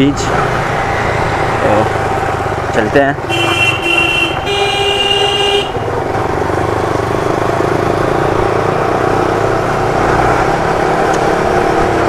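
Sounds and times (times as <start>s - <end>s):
motorcycle running on road: 0.0s - 12.0s
vehicle horn honking: 3.2s - 5.9s.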